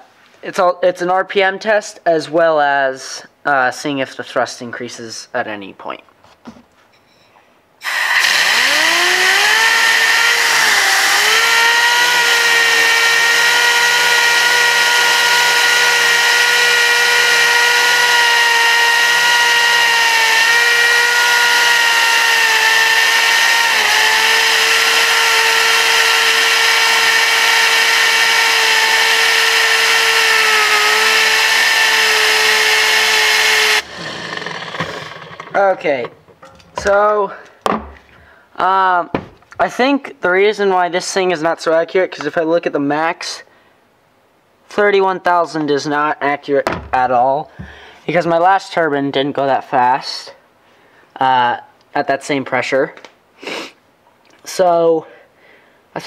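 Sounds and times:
compressed air hissing: 7.8s - 8.8s, 53.4s - 53.8s
air turbine whining: 7.8s - 37.0s.

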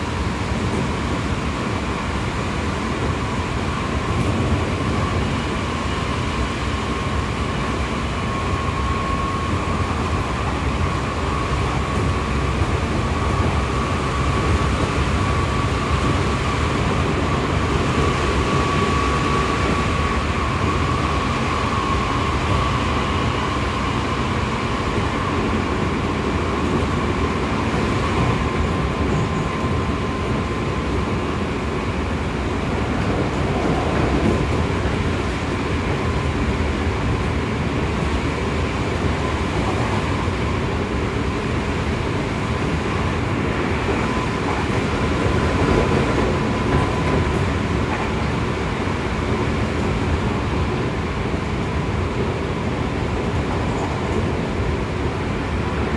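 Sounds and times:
train wheel rumble on rails: 0.0s - 55.9s.

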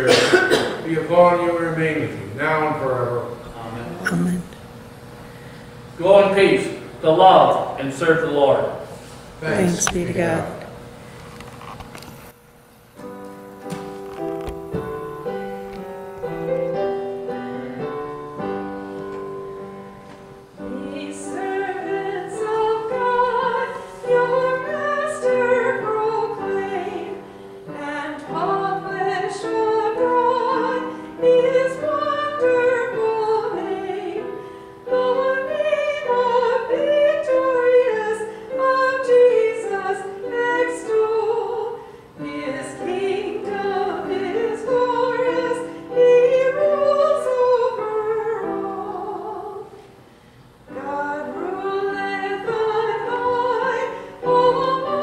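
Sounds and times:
solo singer with vibrato: 4.0s - 4.5s, 9.4s - 10.7s, 50.7s - 55.0s
keyboard accompaniment: 12.9s - 49.8s.

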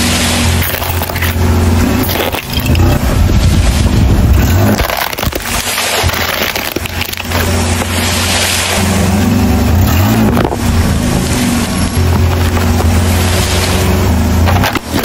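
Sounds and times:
car engine hum: 0.0s - 15.0s
plastic toys cracking: 4.4s - 7.5s.

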